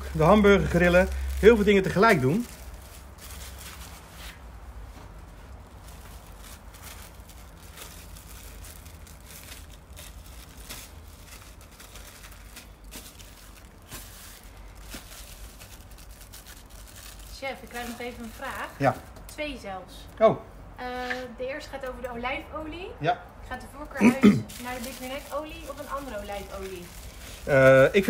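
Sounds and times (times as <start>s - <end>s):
plastic film crinkling: 0.0s - 19.4s, 23.5s - 28.0s.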